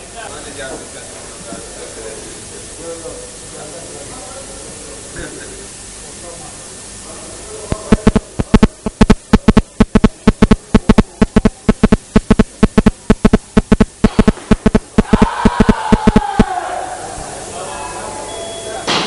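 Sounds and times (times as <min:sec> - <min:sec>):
people shouting: 0:15.0 - 0:17.2.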